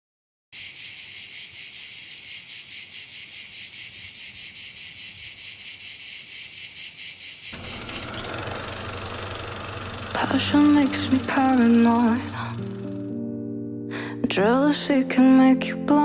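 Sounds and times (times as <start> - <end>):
crickets chirping: 0.6 - 10.1
low hum: 7.6 - 13.2.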